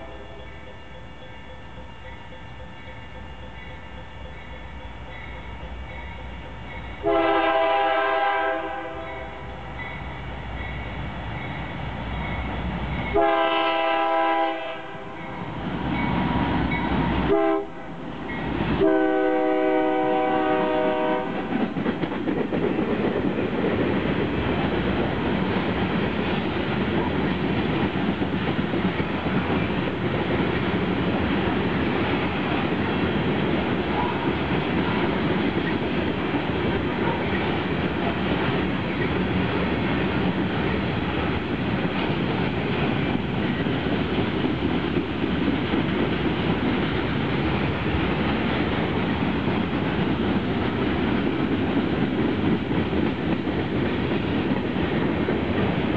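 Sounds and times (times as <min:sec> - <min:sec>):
locomotive air horn blasts: 0:07.0 - 0:09.4, 0:13.1 - 0:15.2, 0:17.2 - 0:18.0, 0:18.8 - 0:21.5
wheels clacking on rail joints: 0:18.1 - 0:55.9.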